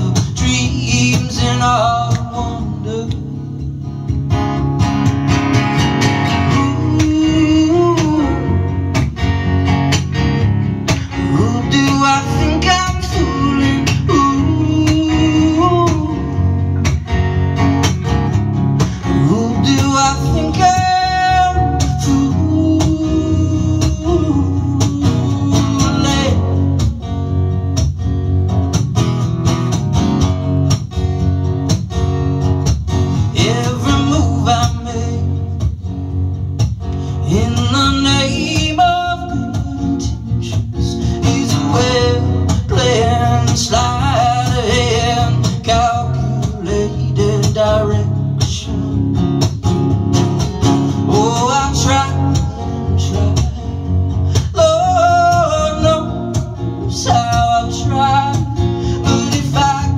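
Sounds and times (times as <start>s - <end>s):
man singing: 0.0s - 3.7s, 6.0s - 9.0s, 10.9s - 16.9s, 18.8s - 27.0s, 33.2s - 35.8s, 37.0s - 49.2s, 51.0s - 59.9s
acoustic guitar strumming: 0.0s - 59.9s.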